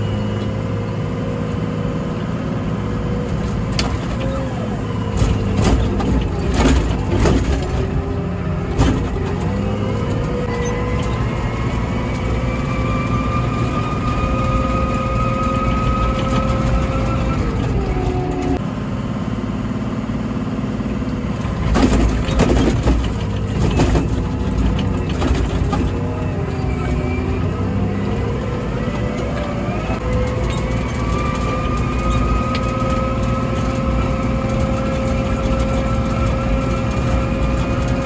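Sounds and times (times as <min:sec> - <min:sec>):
diesel engine working under load: 0:00.0 - 0:38.0
engine whine: 0:00.0 - 0:38.0
sharp clunks and knocks: 0:05.1 - 0:10.4, 0:21.5 - 0:26.0.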